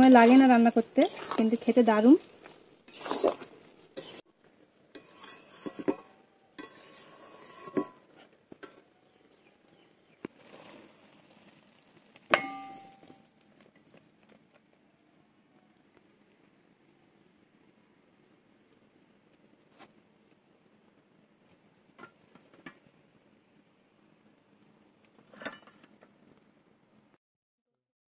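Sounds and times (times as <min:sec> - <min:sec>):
metal spatula scraping a pan: 0:00.0 - 0:04.3, 0:04.9 - 0:08.8, 0:10.3 - 0:11.5, 0:25.2 - 0:25.9
ringing metal clank: 0:12.4 - 0:13.1.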